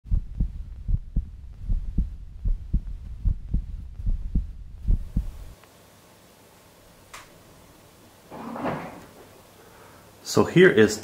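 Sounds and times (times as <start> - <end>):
heartbeat thumps: 0.0 - 5.6
low hum: 0.0 - 5.6.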